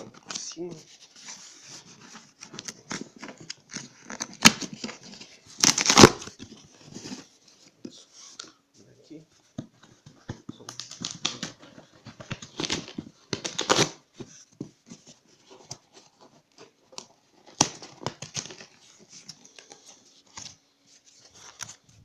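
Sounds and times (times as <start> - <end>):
cardboard scraping and rustling: 0.7 - 8.4
packing tape tearing: 5.6 - 6.4, 10.7 - 14.0.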